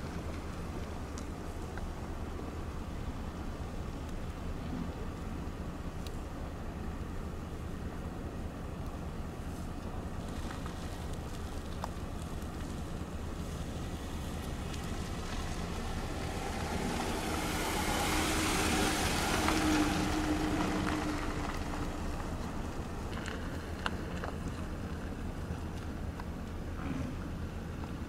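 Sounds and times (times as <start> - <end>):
vehicle rumble: 0.0 - 28.0
passing vehicle road noise: 9.6 - 28.0.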